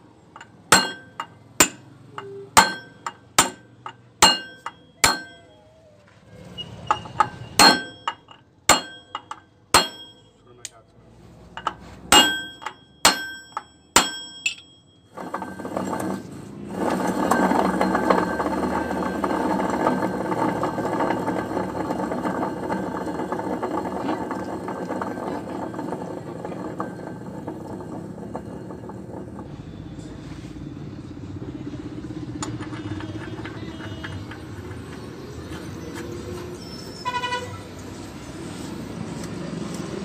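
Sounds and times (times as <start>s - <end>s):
vehicle engine running: 15.4s - 36.7s.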